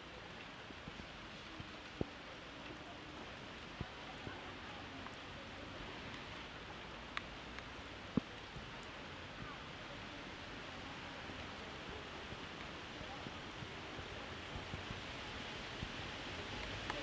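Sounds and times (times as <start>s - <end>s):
rain falling on street: 0.0s - 17.0s
raindrop taps: 5.8s - 9.6s, 15.7s - 17.0s.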